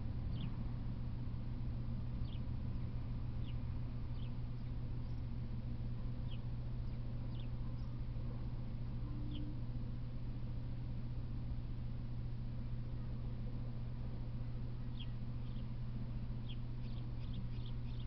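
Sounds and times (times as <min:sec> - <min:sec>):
steady low hum: 0:00.0 - 0:18.0
small bird chirping: 0:00.3 - 0:00.6, 0:02.2 - 0:05.3, 0:06.2 - 0:08.0, 0:09.2 - 0:09.6, 0:14.9 - 0:15.7, 0:16.4 - 0:18.0.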